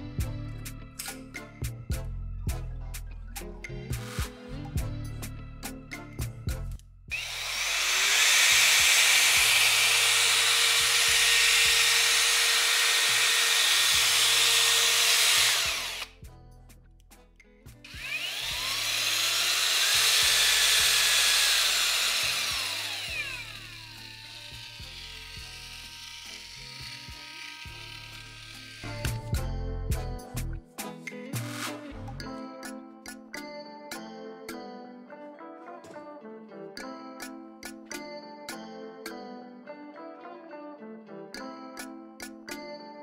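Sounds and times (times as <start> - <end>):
background music with steady beat: 0.0 - 7.2, 8.4 - 40.4, 41.0 - 43.0
paddle mixer running: 7.1 - 16.1, 17.9 - 29.2.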